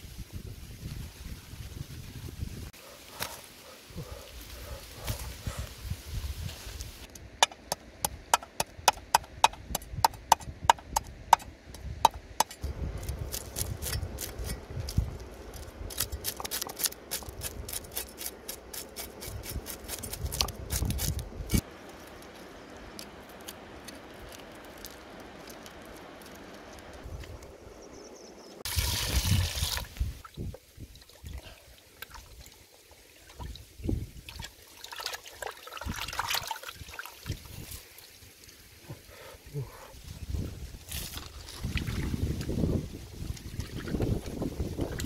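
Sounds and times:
cleaver knocking on wooden block: 0:07.4 - 0:12.6.

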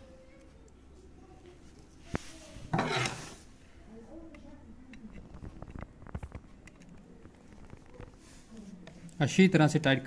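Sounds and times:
faint metal tool clicks and scrapes: 0:04.3 - 0:09.2.

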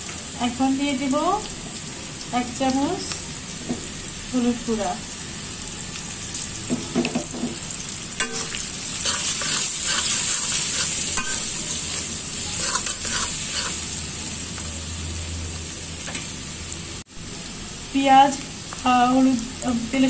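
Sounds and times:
food sizzling in hot oil: 0:00.0 - 0:20.0
spatula scraping a pan: 0:08.2 - 0:14.0.

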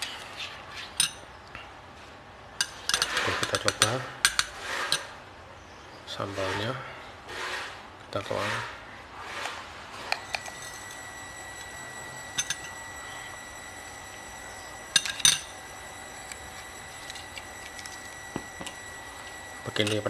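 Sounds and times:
metal spoon clinking on glass: 0:12.4 - 0:12.8, 0:14.9 - 0:15.6.

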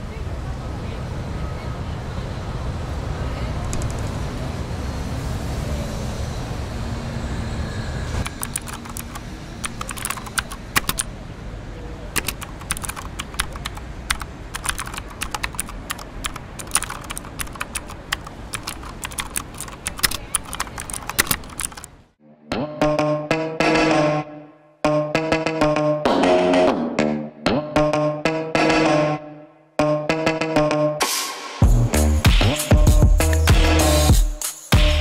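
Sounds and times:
low traffic rumble: 0:00.0 - 0:22.2
keyboard typing: 0:08.2 - 0:11.1, 0:12.2 - 0:22.0.

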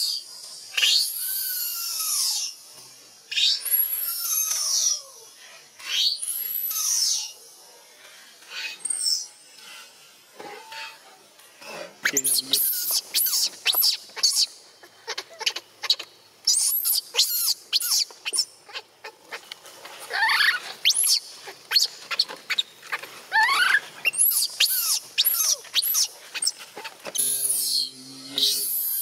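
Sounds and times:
infant monkey crying: 0:12.0 - 0:19.4, 0:20.1 - 0:22.6, 0:23.3 - 0:29.0.

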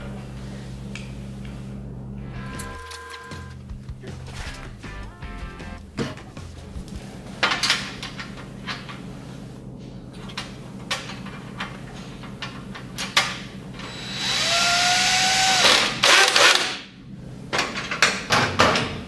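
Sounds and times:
cordless drill whining: 0:13.8 - 0:16.7.

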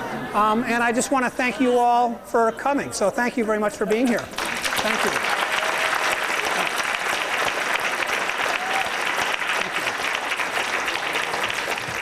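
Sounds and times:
audience applauding: 0:04.2 - 0:12.0.

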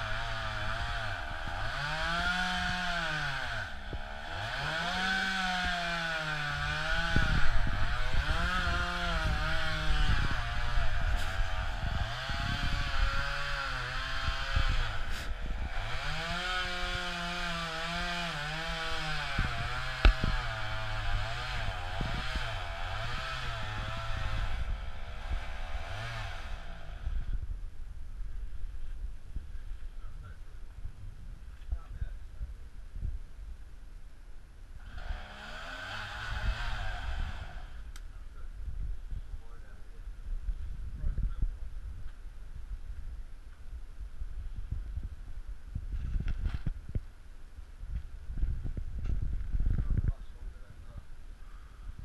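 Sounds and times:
pole saw motor revving: 0:00.0 - 0:27.3, 0:34.8 - 0:38.0
sharp knocks: 0:20.0 - 0:20.4.

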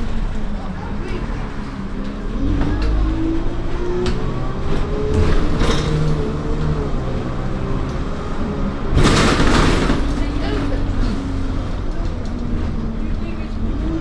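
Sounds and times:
bus engine: 0:00.0 - 0:14.0
road noise: 0:00.0 - 0:14.0.

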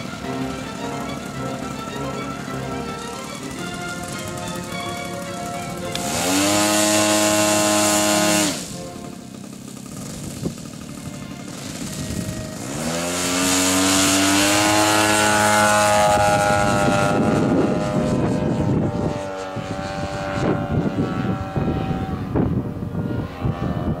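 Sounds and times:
model plane engine and propeller: 0:00.0 - 0:24.0.

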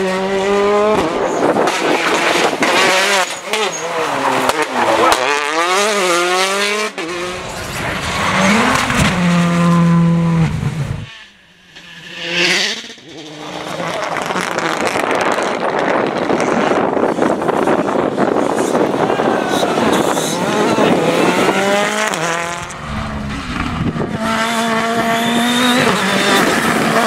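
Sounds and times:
rally car engines revving: 0:00.0 - 0:27.0
car rushing past: 0:03.9 - 0:11.2, 0:20.2 - 0:26.6.

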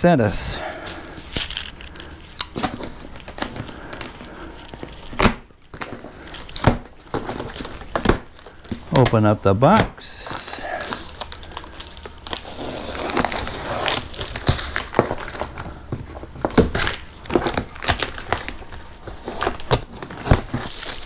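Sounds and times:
tape crinkling: 0:00.2 - 0:21.0
cardboard scraping: 0:09.7 - 0:21.0
knife slicing packing tape: 0:10.2 - 0:15.5.

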